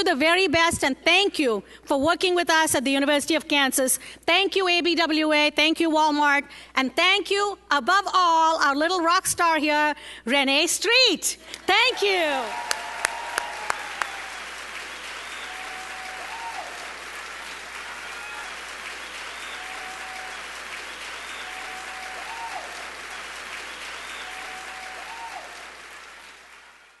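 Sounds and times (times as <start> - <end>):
large audience applauding: 11.5 - 27.0.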